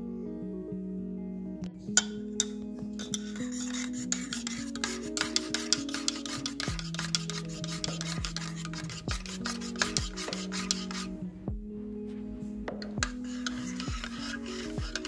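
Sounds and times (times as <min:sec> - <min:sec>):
metal spoon stirring in mug: 0:01.9 - 0:11.1, 0:12.8 - 0:15.0.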